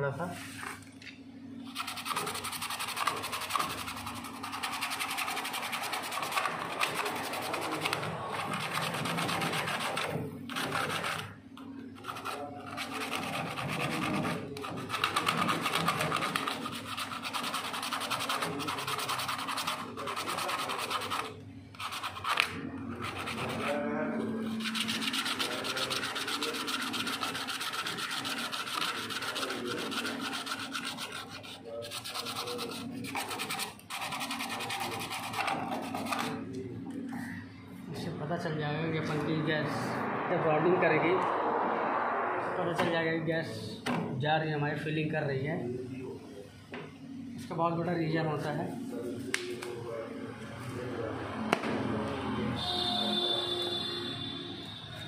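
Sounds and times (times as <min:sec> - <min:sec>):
sandpaper scraping copper pipe: 0:01.7 - 0:11.4, 0:12.0 - 0:36.4.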